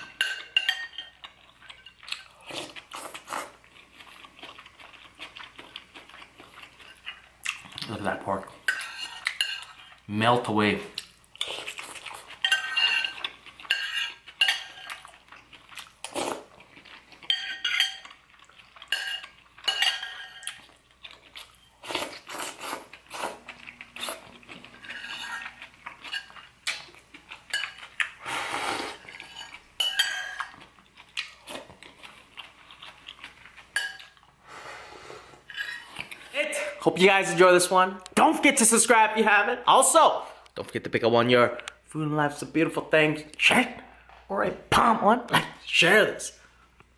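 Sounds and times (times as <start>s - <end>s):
spoon clinking against bowl: 0.1s - 1.1s, 18.9s - 20.6s.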